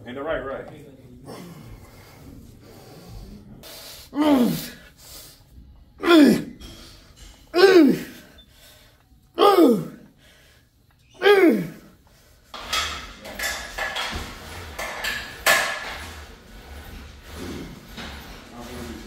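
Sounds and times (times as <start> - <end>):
person grunting with effort: 4.2 - 4.8, 6.0 - 6.6, 7.5 - 8.3, 9.4 - 10.1, 11.2 - 11.9.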